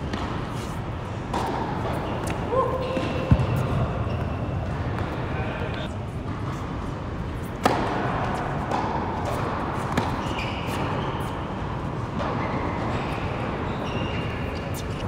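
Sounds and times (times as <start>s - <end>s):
tennis racket hitting ball: 0.0s - 2.4s, 7.5s - 10.8s
indoor hall hum: 0.0s - 15.0s
ball bounce: 1.3s - 4.3s.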